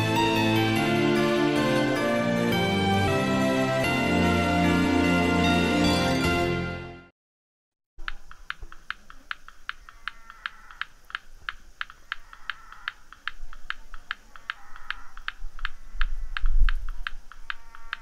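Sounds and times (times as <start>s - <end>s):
sharp clicks: 8.0s - 18.0s.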